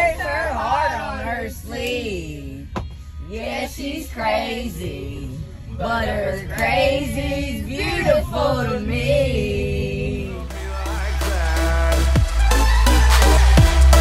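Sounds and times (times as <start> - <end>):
bass line: 4.2 - 14.0.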